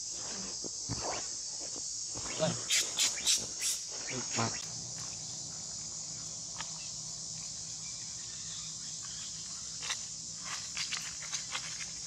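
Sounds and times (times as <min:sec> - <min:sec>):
high-pitched insect chorus: 0:00.0 - 0:12.0
rustling dry leaves: 0:07.2 - 0:12.0.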